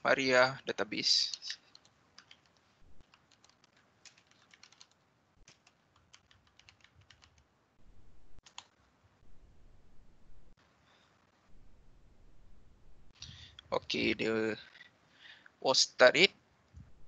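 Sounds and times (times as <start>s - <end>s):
keyboard typing: 1.2s - 7.5s, 8.4s - 8.8s.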